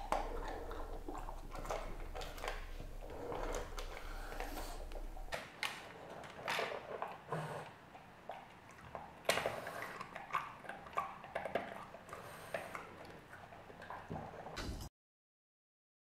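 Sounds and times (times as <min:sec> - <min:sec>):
dog chewing and crunching: 0:00.0 - 0:14.6.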